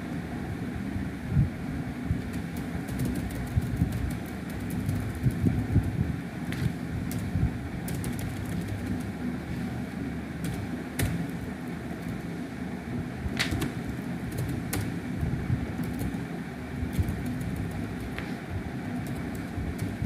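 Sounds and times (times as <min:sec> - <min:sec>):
low background rumble: 0:00.0 - 0:20.0
keyboard keys clicking: 0:02.2 - 0:05.9, 0:06.5 - 0:09.1, 0:10.4 - 0:11.4, 0:13.4 - 0:15.0, 0:15.8 - 0:16.2, 0:16.8 - 0:20.0.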